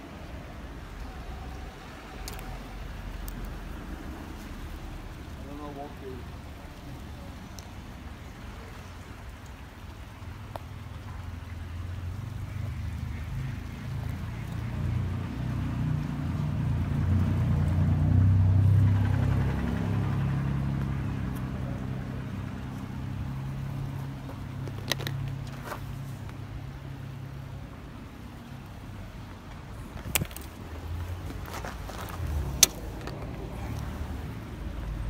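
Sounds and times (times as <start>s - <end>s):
vehicle engine passing: 11.2s - 29.9s, 30.7s - 35.0s
sharp clicks: 32.5s - 33.9s.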